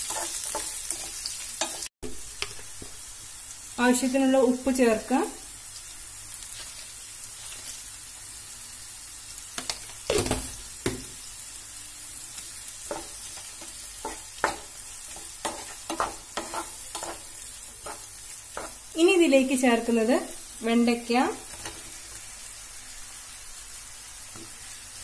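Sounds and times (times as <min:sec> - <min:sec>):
spatula scraping and knocking pan: 0:00.0 - 0:03.0, 0:12.8 - 0:18.8
onions sizzling in oil: 0:00.0 - 0:25.0.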